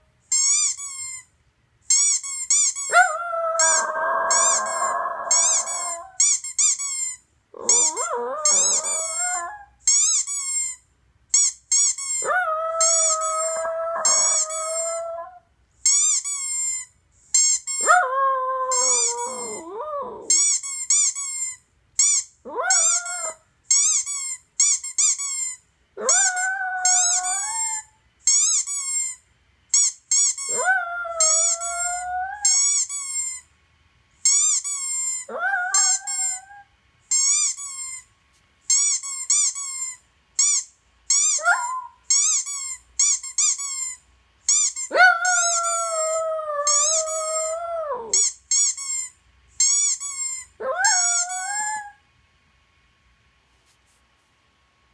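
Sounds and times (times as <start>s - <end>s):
squeaky dog toy sounds: 0.2s - 33.5s, 34.2s - 52.0s
dog howling: 2.9s - 6.2s, 7.6s - 9.7s, 12.2s - 15.4s, 17.8s - 20.4s, 22.5s - 23.4s, 26.0s - 27.9s, 30.5s - 32.6s, 35.3s - 36.7s, 41.4s - 42.0s, 44.9s - 48.2s, 50.6s - 52.0s.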